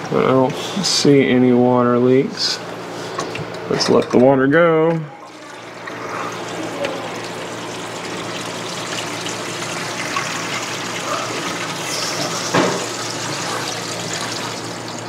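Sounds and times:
water draining down sink: 0:05.2 - 0:15.0.

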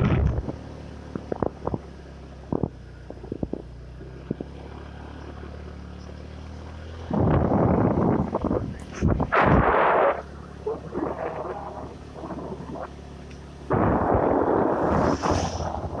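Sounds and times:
vehicle engine hum: 0:00.0 - 0:16.0
loud rushing noise: 0:13.7 - 0:16.0.

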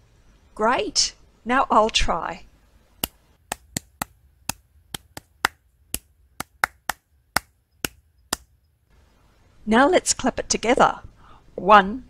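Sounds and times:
hands clapping a rhythm: 0:03.0 - 0:08.5.

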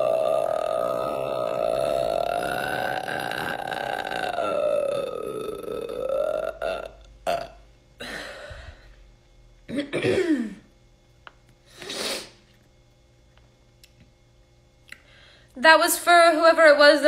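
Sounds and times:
woman burping: 0:00.0 - 0:08.5, 0:09.7 - 0:10.7
breathing: 0:08.0 - 0:09.0, 0:15.0 - 0:15.6.

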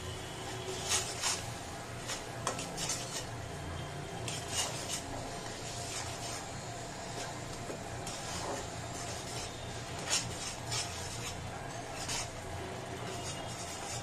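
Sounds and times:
spices sizzling in hot oil: 0:00.5 - 0:03.6, 0:04.2 - 0:14.0
metal spoon scraping metal pan: 0:00.6 - 0:03.4, 0:04.2 - 0:06.5, 0:08.0 - 0:14.0.

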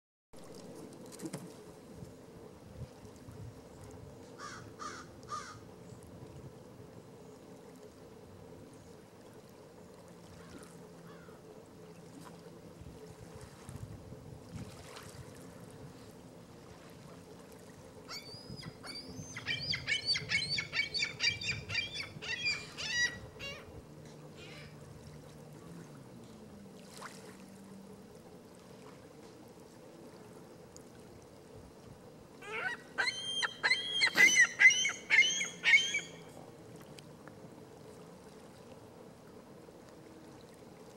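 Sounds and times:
heron short repeated calls: 0:32.5 - 0:36.1.

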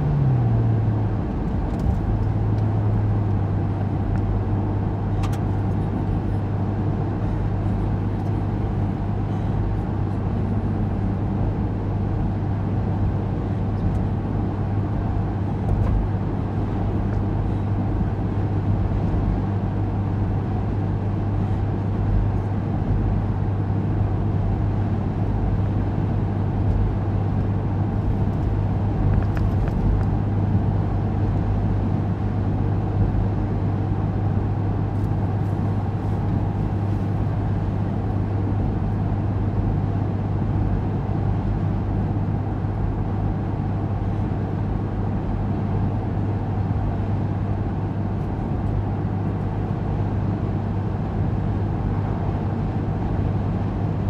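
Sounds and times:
car engine and tyre drone: 0:00.0 - 0:41.0.

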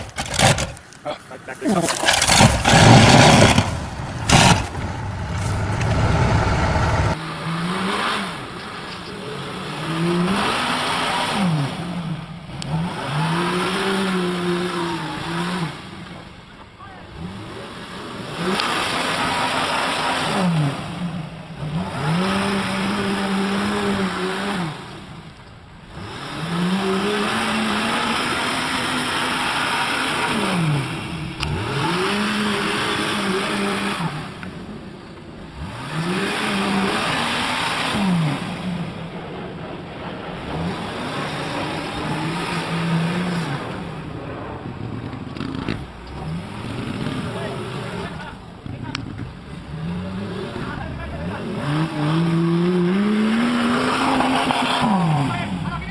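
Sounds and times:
tyres churning through mud: 0:00.0 - 0:55.9
engine revving hard: 0:02.1 - 0:16.0, 0:17.1 - 0:25.1, 0:25.9 - 0:34.4, 0:35.5 - 0:39.2, 0:40.4 - 0:44.2, 0:49.5 - 0:55.9.

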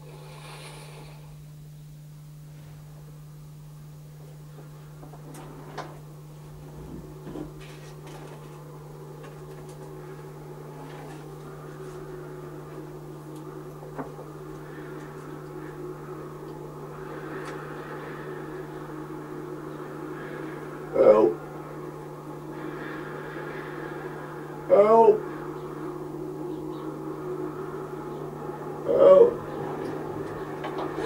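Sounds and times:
faint hiss: 0:00.0 - 0:03.0
steady low hum: 0:00.0 - 0:31.0.

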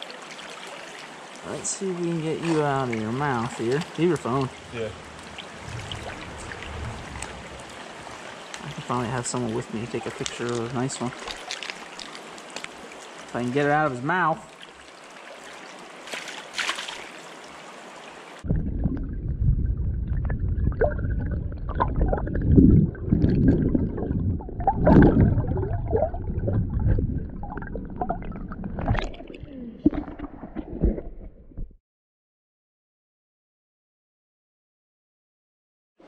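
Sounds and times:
stream running: 0:00.0 - 0:18.6
water sloshing and gurgling: 0:00.0 - 0:31.8
rumbling microphone noise: 0:02.7 - 0:11.2, 0:18.5 - 0:31.8.

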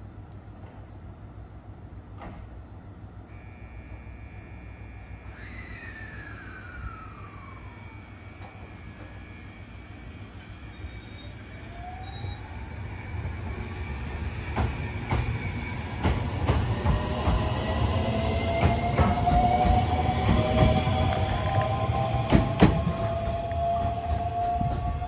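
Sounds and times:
electric train motors whining: 0:03.3 - 0:25.0
train wheels clicking over rail joints: 0:13.4 - 0:17.7, 0:18.4 - 0:25.0.

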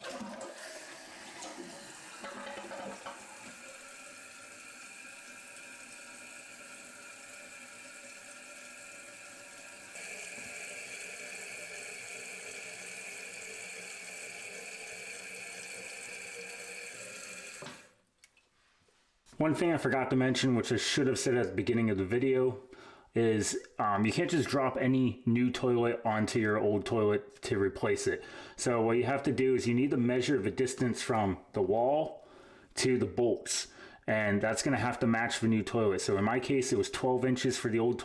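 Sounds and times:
toilet tank refilling hiss: 0:00.0 - 0:17.9
toilet flush gurgling: 0:00.0 - 0:18.0.

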